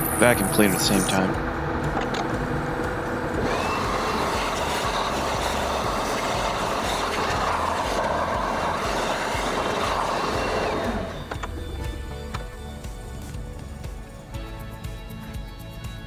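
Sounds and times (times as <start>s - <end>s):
milling machine spindle running: 0.0s - 12.5s
shop vacuum whining: 0.0s - 13.4s.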